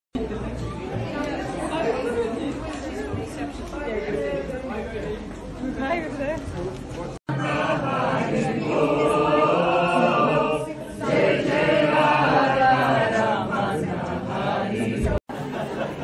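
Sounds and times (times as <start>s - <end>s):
group of voices chanting: 7.3s - 15.2s.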